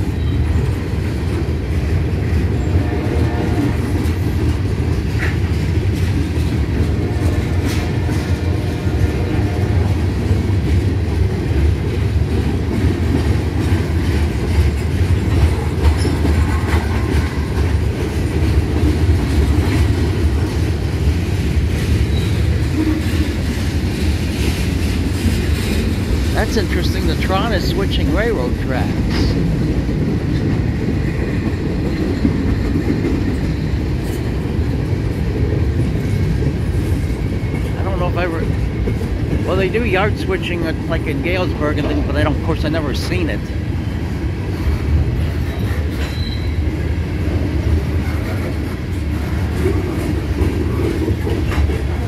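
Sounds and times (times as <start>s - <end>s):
freight train wheels rumbling: 0.0s - 52.0s.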